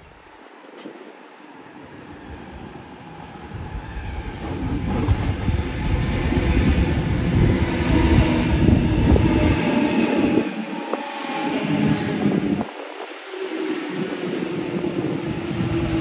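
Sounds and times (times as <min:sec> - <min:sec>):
electric train passing: 0:00.3 - 0:16.0
wheels rumbling on rail: 0:03.9 - 0:16.0.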